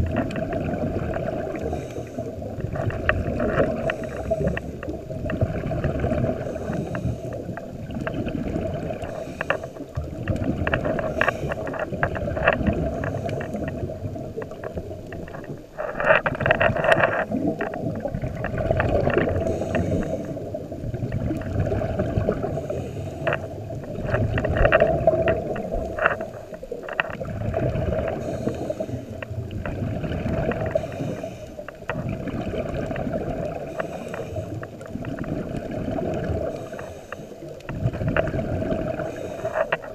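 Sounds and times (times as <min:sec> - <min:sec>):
exhaled bubbles: 0:00.0 - 0:39.9
diver breathing through regulator: 0:01.2 - 0:05.0, 0:05.8 - 0:07.8, 0:08.5 - 0:10.0, 0:10.6 - 0:14.0, 0:19.0 - 0:20.7, 0:21.8 - 0:24.8, 0:27.8 - 0:29.3, 0:30.1 - 0:32.0, 0:33.5 - 0:35.3, 0:36.3 - 0:37.9, 0:38.7 - 0:39.9.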